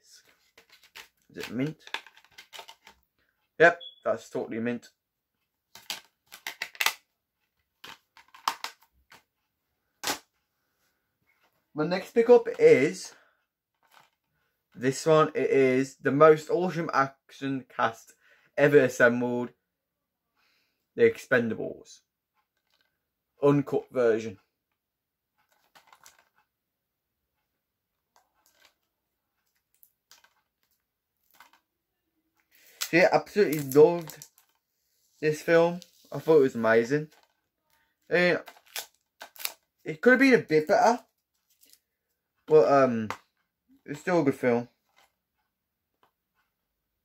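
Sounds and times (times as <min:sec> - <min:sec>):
plastic case clicking and rustling: 0:00.4 - 0:03.1, 0:05.7 - 0:07.0, 0:07.8 - 0:09.3, 0:13.8 - 0:14.2, 0:25.4 - 0:26.4, 0:28.1 - 0:31.6, 0:37.0 - 0:37.4
plastic case clicks and rattles: 0:00.6 - 0:03.0, 0:07.8 - 0:09.2.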